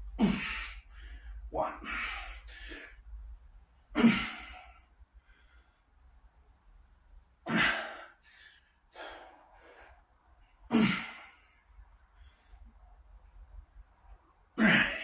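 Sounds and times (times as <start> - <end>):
man breathing hard: 0.2 - 3.0, 4.0 - 5.9, 7.5 - 12.7.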